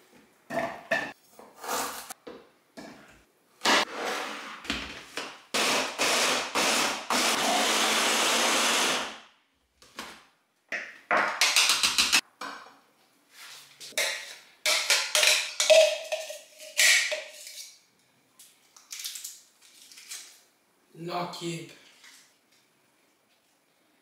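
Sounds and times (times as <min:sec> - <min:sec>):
blender chopper running: 0:05.6 - 0:09.2.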